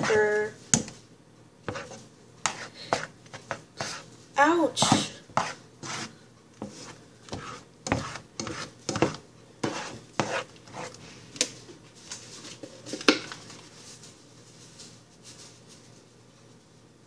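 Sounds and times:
spatula scraping a frying pan: 0:01.7 - 0:04.1, 0:05.4 - 0:11.0.

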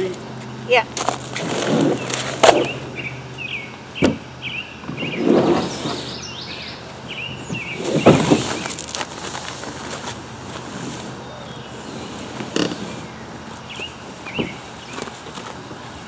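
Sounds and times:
small bird chirping: 0:02.0 - 0:05.2, 0:05.8 - 0:08.8, 0:11.2 - 0:15.1.

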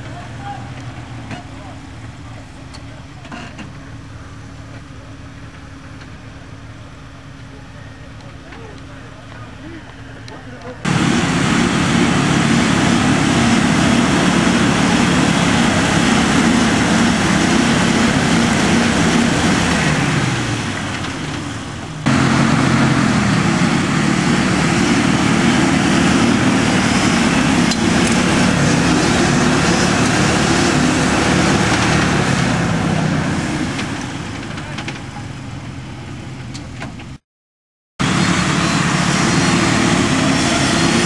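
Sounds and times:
engine revving hard: 0:10.8 - 0:34.3, 0:38.0 - 0:41.0.

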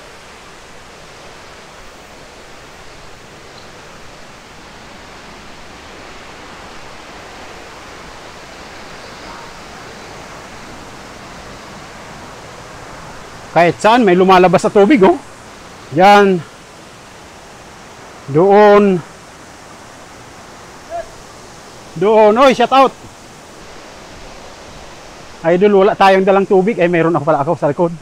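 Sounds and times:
flowing water rushing: 0:00.0 - 0:28.0.

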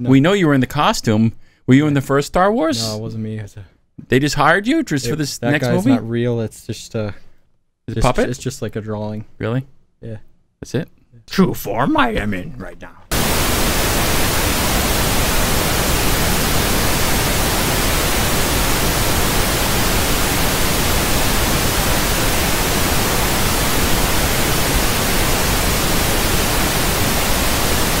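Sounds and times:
tv static hiss: 0:05.1 - 0:06.0, 0:13.1 - 0:28.0.

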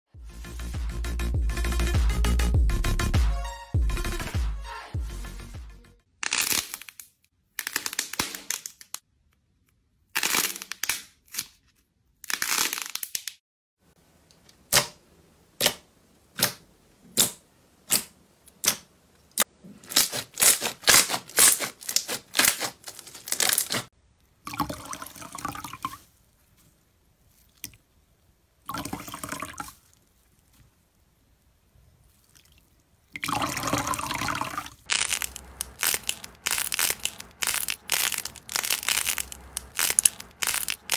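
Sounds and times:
slime squishing and crackling: 0:19.8 - 0:23.9, 0:34.8 - 0:40.9
slime air pockets popping: 0:34.9 - 0:40.9.

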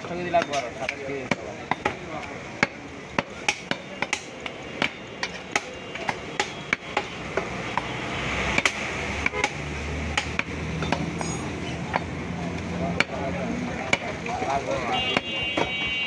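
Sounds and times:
cleaver chopping meat on wood: 0:00.0 - 0:07.9, 0:08.5 - 0:11.2, 0:12.9 - 0:13.2, 0:13.8 - 0:14.2
steady background noise: 0:00.0 - 0:16.0.

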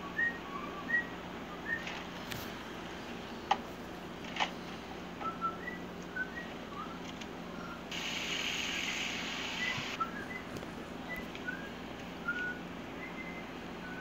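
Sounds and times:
person whistling: 0:09.6 - 0:14.0.

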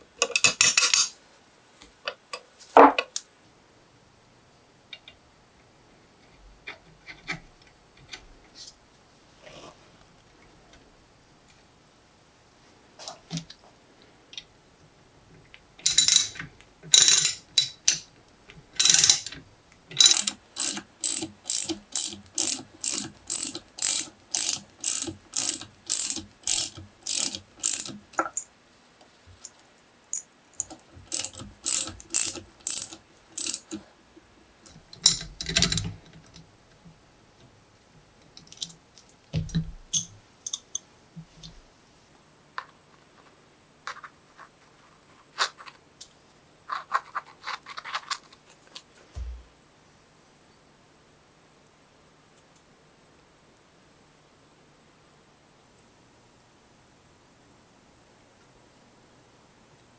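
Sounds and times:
ratchet wrench clicking: 0:15.8 - 0:18.0, 0:18.8 - 0:19.4, 0:20.0 - 0:28.5, 0:30.5 - 0:33.8.

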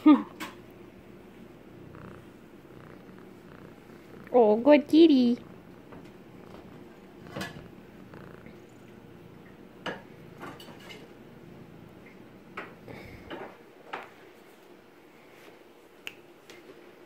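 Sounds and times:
kitten purring: 0:01.2 - 0:12.2.

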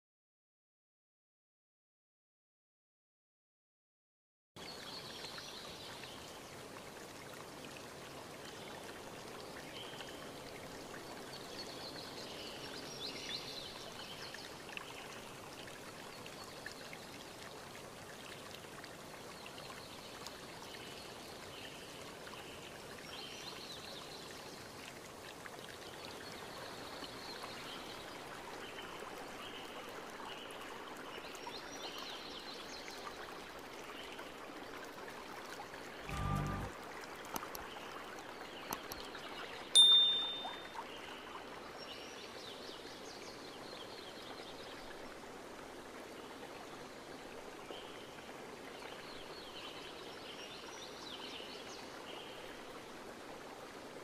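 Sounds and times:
rushing water: 0:04.6 - 0:54.0
short high chirps: 0:36.1 - 0:36.7, 0:39.8 - 0:40.8.

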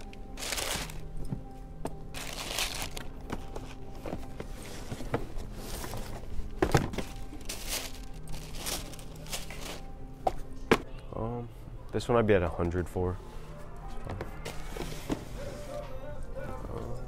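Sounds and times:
tissue paper rustling: 0:00.0 - 0:01.0, 0:02.2 - 0:03.7, 0:07.1 - 0:09.9.

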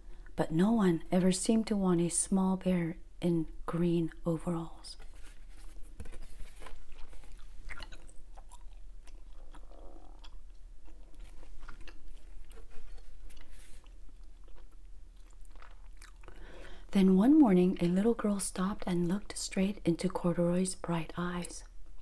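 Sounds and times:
gum chewing smacks: 0:06.8 - 0:16.4.

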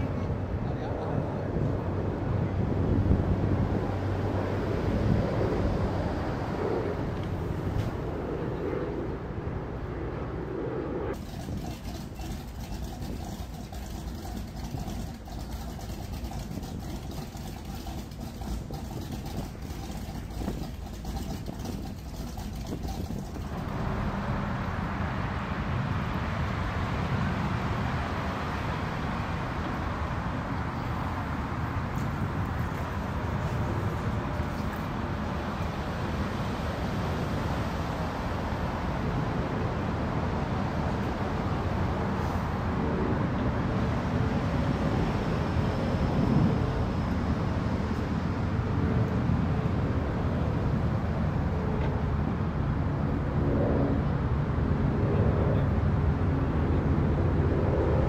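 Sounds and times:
motorboat engines running: 0:11.2 - 0:26.1, 0:29.6 - 0:58.0.

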